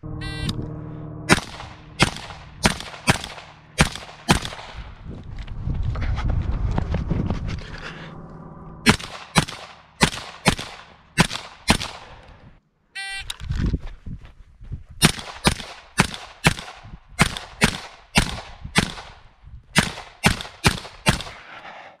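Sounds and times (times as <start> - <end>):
short electronic beep: 0.0 - 1.3, 13.0 - 13.3
carbine firing rapid shots: 1.3 - 4.8, 8.9 - 12.1.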